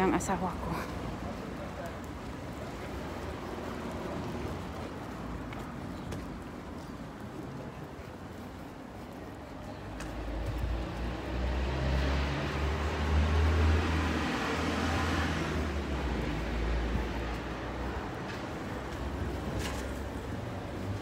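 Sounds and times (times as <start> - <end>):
car driving past: 10.7 - 17.0.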